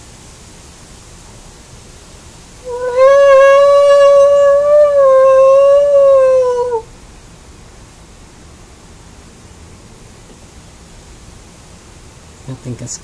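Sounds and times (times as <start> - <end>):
background hiss: 0.0 - 13.0
imitation wolf howl: 2.6 - 6.9.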